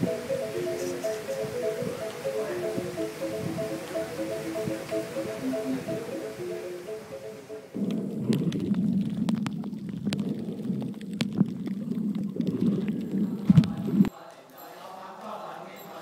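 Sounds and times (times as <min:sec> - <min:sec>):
muffled underwater rumble: 0:07.8 - 0:14.1
sharp underwater clicks: 0:07.8 - 0:14.1.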